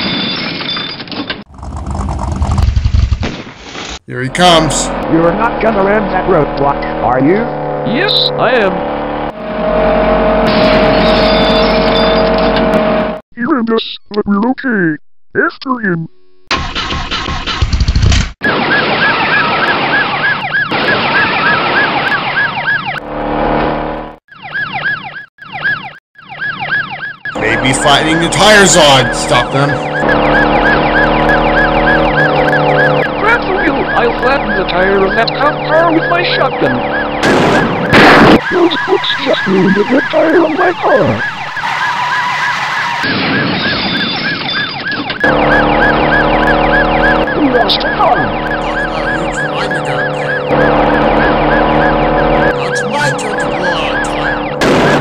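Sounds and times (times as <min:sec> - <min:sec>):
car engine: 0:01.5 - 0:03.3, 0:04.1 - 0:13.2, 0:22.9 - 0:24.2, 0:27.4 - 0:43.0, 0:45.2 - 0:55.0
police siren yelping: 0:18.4 - 0:23.1, 0:24.3 - 0:55.0.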